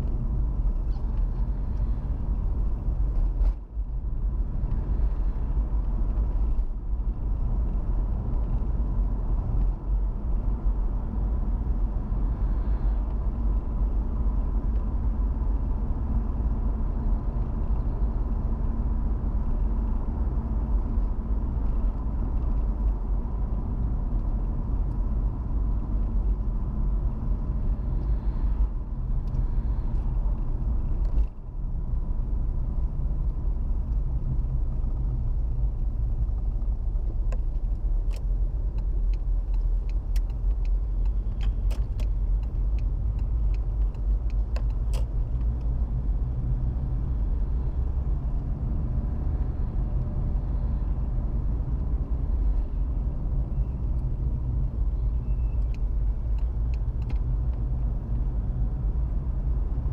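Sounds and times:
car road and engine rumble: 0:00.0 - 0:59.9.

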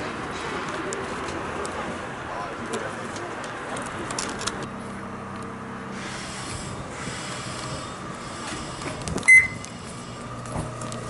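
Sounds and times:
railway station background hum: 0:00.0 - 0:11.0
short electronic beep: 0:09.3 - 0:09.6.

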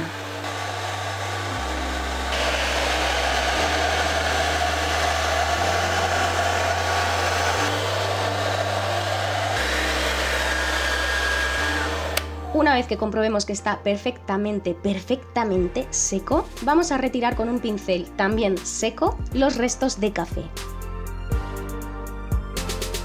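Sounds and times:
hair dryer blowing: 0:00.0 - 0:12.7.

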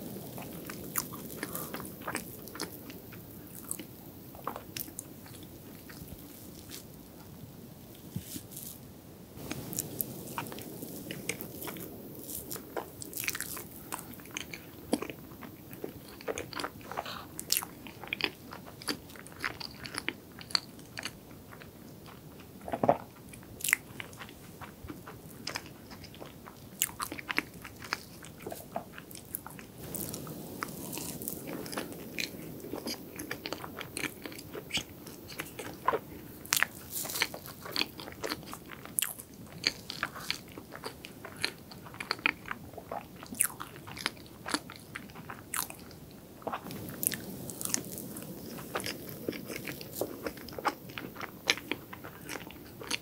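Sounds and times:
chewing and mouth sounds: 0:00.0 - 0:06.9, 0:09.4 - 0:53.0.

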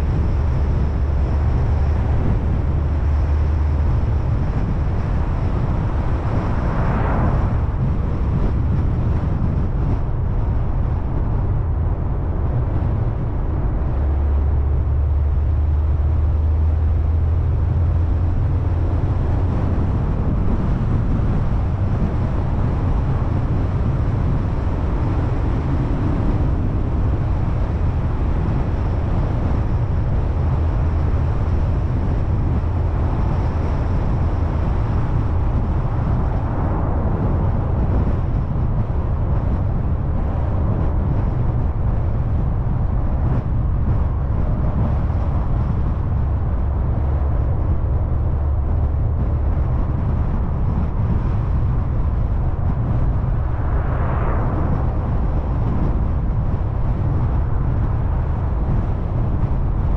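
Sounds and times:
car engine and tyres rumbling: 0:00.0 - 0:59.9
low drone: 0:45.2 - 0:57.4.

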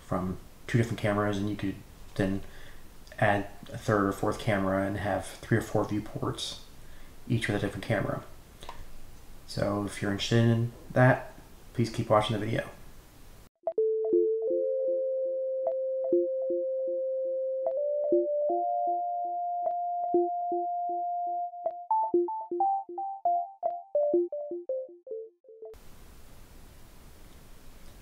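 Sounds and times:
synthesizer jingle: 0:13.7 - 0:25.8.

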